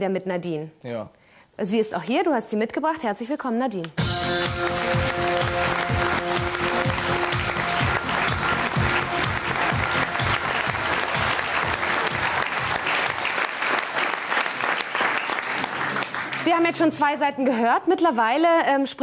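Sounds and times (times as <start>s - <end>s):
audience applauding: 4.2s - 17.6s.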